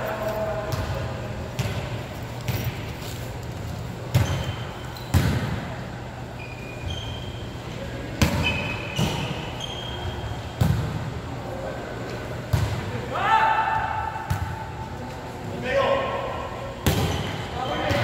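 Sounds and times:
sneakers squeaking on court: 0:00.7 - 0:05.6, 0:06.2 - 0:10.9.

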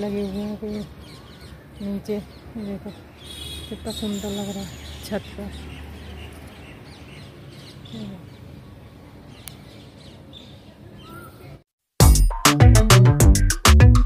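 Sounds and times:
birds chirping: 0:00.0 - 0:11.6
loud rhythmic music: 0:12.0 - 0:14.0.

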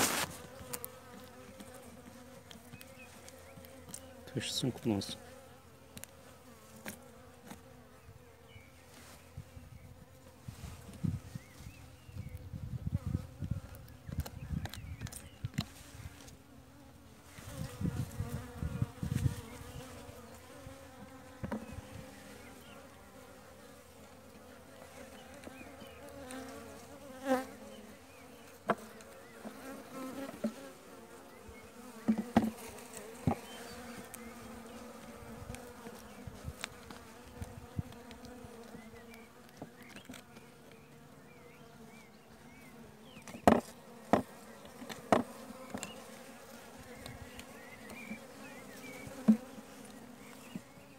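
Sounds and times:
clicks and knocks of hive frames: 0:00.0 - 0:04.9, 0:13.5 - 0:16.4, 0:20.9 - 0:21.8, 0:28.6 - 0:30.7, 0:31.9 - 0:40.8, 0:43.2 - 0:46.2, 0:46.9 - 0:50.9
bees buzzing: 0:00.0 - 0:50.9.

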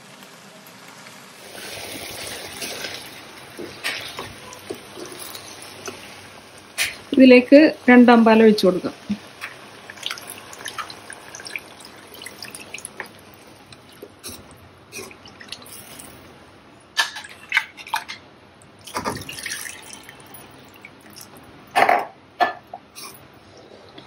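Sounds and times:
liquid pouring and splashing: 0:01.4 - 0:07.2, 0:08.9 - 0:16.4, 0:17.0 - 0:21.8
metal ladle stirring a pot: 0:02.2 - 0:07.2.

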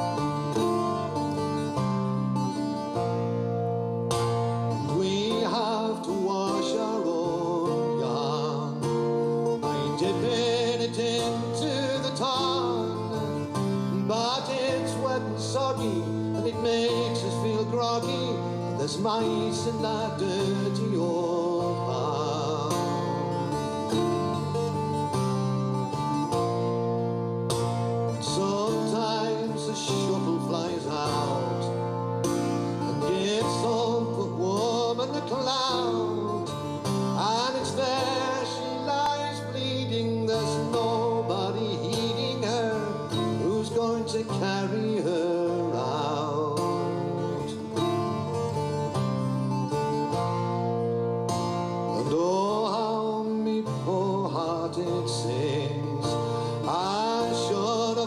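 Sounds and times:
man singing a folk song: 0:00.0 - 0:58.0
plucked acoustic strings: 0:00.0 - 0:58.0.

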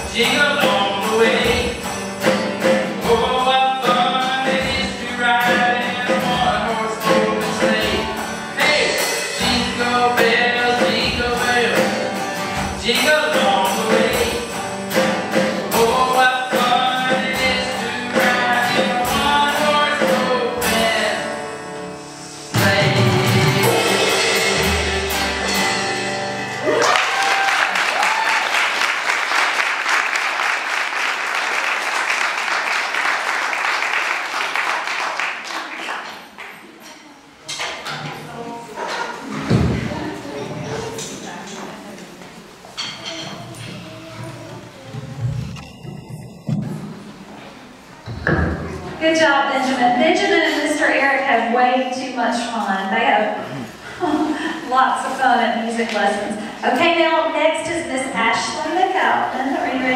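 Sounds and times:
man singing: 0:00.0 - 0:14.6, 0:15.2 - 0:21.5, 0:22.4 - 0:25.1
acoustic guitar: 0:00.0 - 0:59.9
electronic drum kit: 0:22.4 - 0:26.4, 0:43.9 - 0:47.4
audience applauding: 0:26.5 - 0:36.6.

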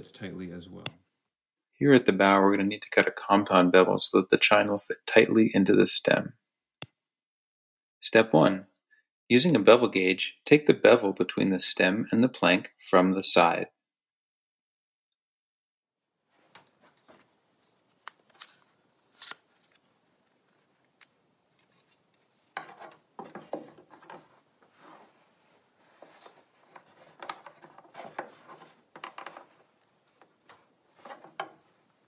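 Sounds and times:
gauge scraping on wood: 0:21.6 - 0:25.2.

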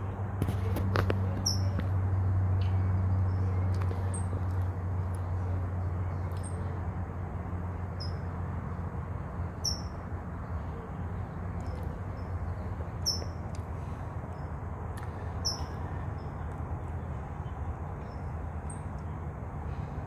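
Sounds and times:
low background hum: 0:00.0 - 0:20.0
high-pitched bird chirps: 0:01.4 - 0:01.8, 0:08.0 - 0:08.3, 0:09.6 - 0:10.0, 0:13.0 - 0:13.4, 0:15.4 - 0:16.3.

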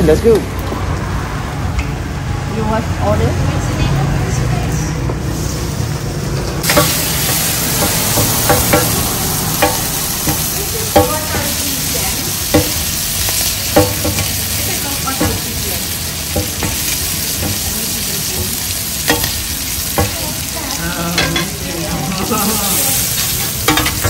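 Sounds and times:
food sizzling in a pan: 0:05.0 - 0:24.0
metal spatula clinking and scraping: 0:06.6 - 0:20.2, 0:21.2 - 0:24.0.

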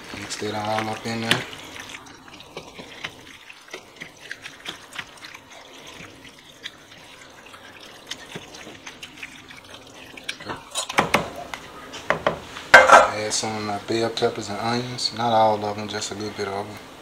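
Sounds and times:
wet squishing and slopping food: 0:00.0 - 0:12.7.

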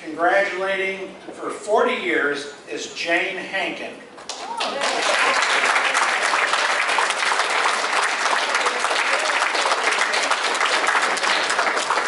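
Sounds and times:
audience applauding: 0:04.3 - 0:12.0.

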